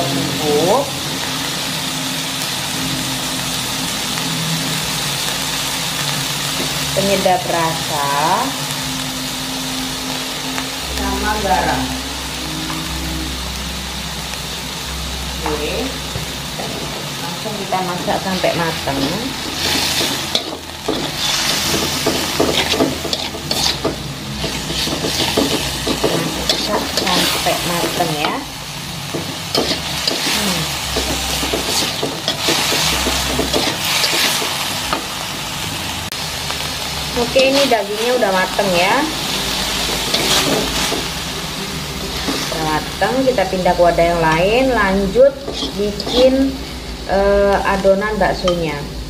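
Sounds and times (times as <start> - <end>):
meat sizzling in a wok: 0.0 - 49.0
low hum: 8.2 - 33.9
metal spatula scraping a pan: 17.9 - 35.0, 39.6 - 41.2, 45.0 - 46.8.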